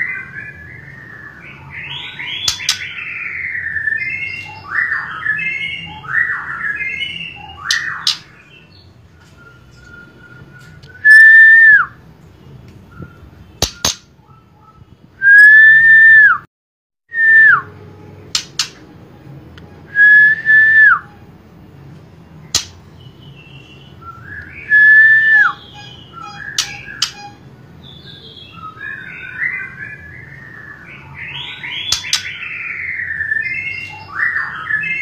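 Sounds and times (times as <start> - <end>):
bird whistling: 0.0 - 12.0, 12.9 - 16.4, 19.9 - 21.2, 23.3 - 35.0
sharp bird ticks: 2.4 - 2.9, 13.6 - 14.1, 18.4 - 18.8, 22.5 - 22.8, 25.8 - 27.3, 31.9 - 32.3.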